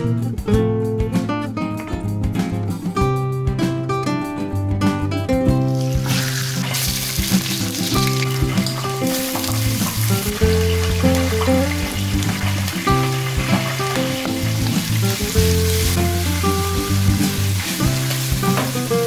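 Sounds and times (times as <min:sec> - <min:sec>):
background music with bass: 0:00.0 - 0:19.0
food sizzling in hot oil: 0:05.6 - 0:19.0.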